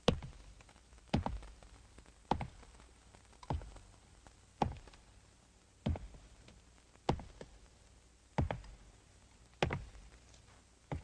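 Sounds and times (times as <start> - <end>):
sharp taps with low thud: 5.8 - 6.2, 8.4 - 8.7.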